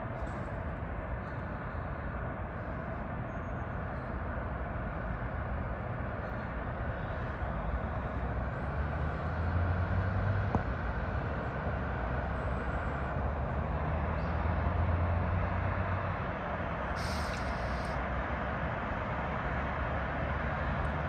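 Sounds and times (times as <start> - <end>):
distant city traffic hum: 0.0 - 21.0
short high hiss: 17.0 - 18.0.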